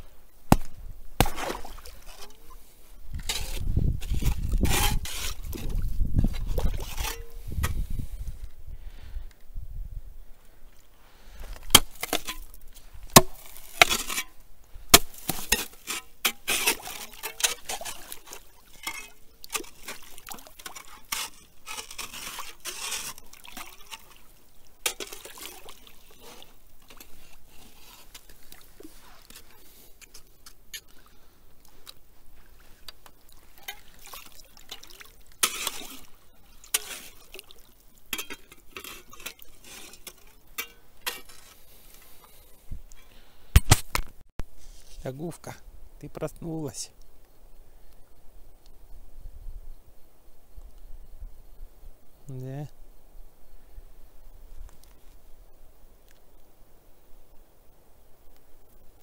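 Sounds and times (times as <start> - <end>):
water splashing and sloshing: 0.3 - 8.5, 10.6 - 45.0.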